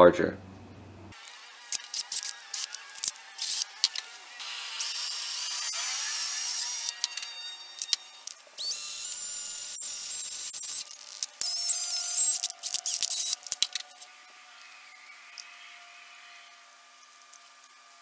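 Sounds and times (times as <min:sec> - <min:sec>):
drill motor whining: 0:01.2 - 0:18.0
short drill blips: 0:04.8 - 0:13.5.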